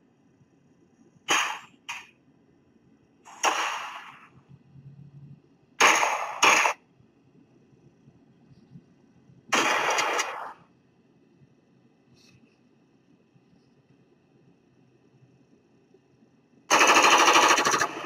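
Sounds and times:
gunshot sound effects: 1.3s - 2.0s, 3.3s - 4.3s, 5.8s - 6.8s, 9.5s - 10.6s.

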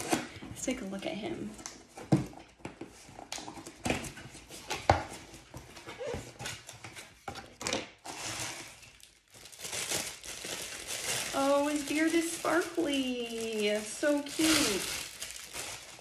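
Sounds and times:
packaging rustling: 8.0s - 16.0s.

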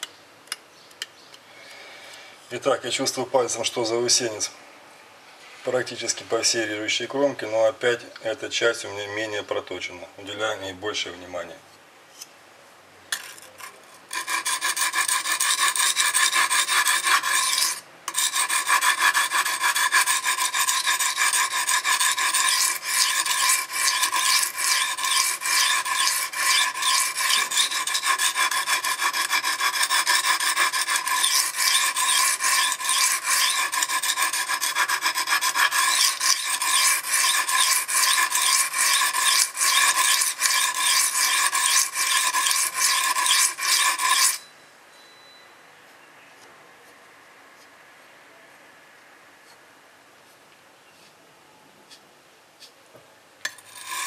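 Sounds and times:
knife rasping on sharpening stone: 13.2s - 44.5s, 53.5s - 54.0s.

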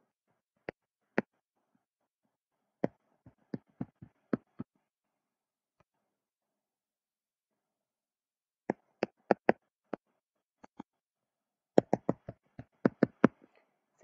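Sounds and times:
stylus tapping on tablet screen: 2.8s - 4.8s, 8.7s - 10.9s, 11.8s - 13.6s.

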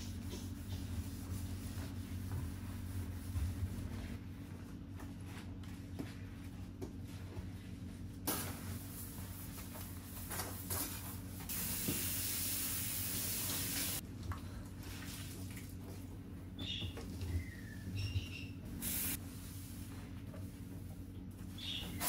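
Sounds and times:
cleaning spray hissing: 18.8s - 19.2s.

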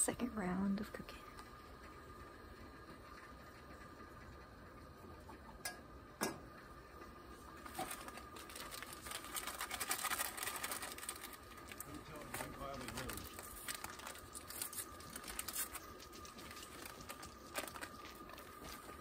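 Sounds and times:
cooking gear clicking and rustling: 7.6s - 19.0s.

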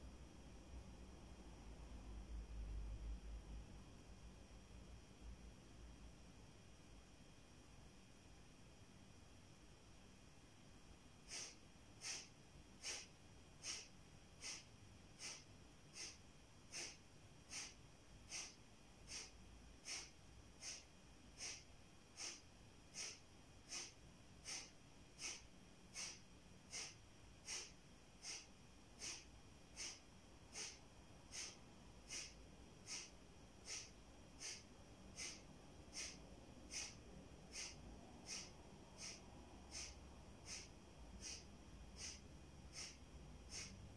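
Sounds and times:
sharp nasal exhalations: 11.3s - 43.8s.

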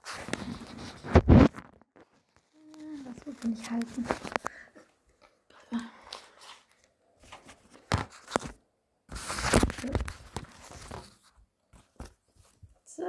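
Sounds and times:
gift packaging crinkling and ripping: 0.0s - 11.2s.

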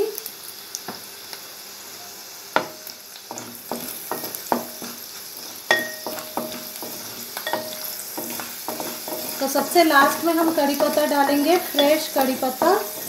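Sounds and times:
spices sizzling in oil: 0.0s - 13.0s
spatula knocking against metal pan: 2.6s - 5.0s, 5.7s - 11.1s.

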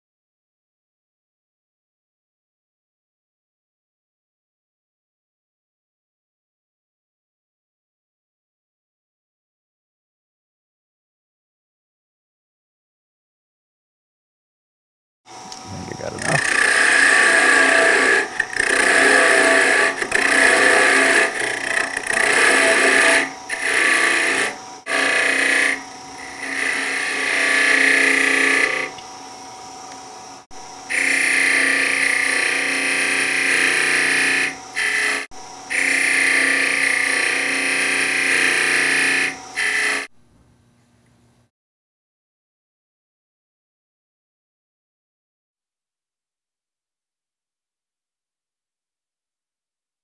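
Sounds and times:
lathe humming: 15.3s - 40.1s
turning tool shaving wood: 15.6s - 29.0s, 30.9s - 40.1s.

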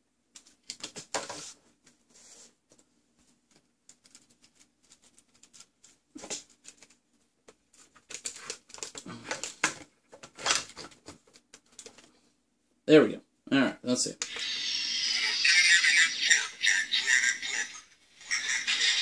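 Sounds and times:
plastic figure rubbing and scraping: 14.3s - 19.0s.

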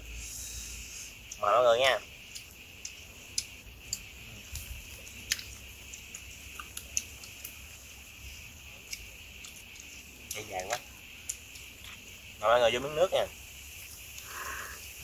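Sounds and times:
chewing: 2.3s - 7.6s, 8.8s - 12.1s.

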